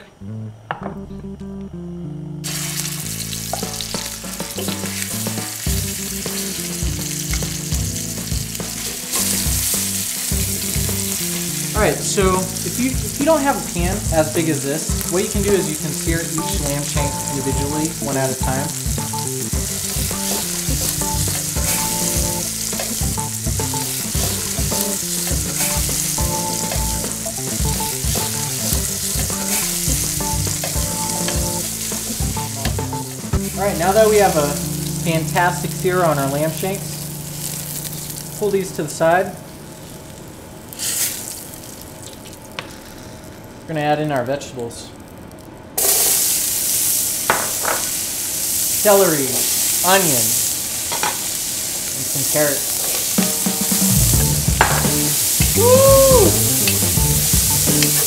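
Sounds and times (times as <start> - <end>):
meat sizzling in hot oil: 2.4 - 43.6, 45.8 - 58.0
metal tongs turning meat: 19.9 - 32.8.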